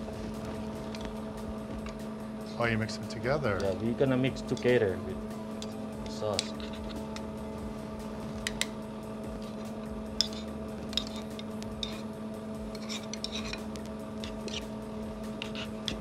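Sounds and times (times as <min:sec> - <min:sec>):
steady background hum: 0:00.0 - 0:16.0.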